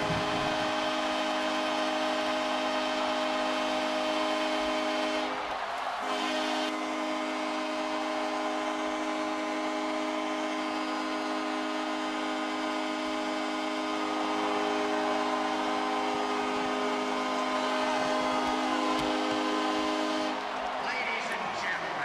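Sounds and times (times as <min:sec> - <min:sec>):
arena horn blast: 0:00.0 - 0:22.0
crowd cheering: 0:00.0 - 0:22.0.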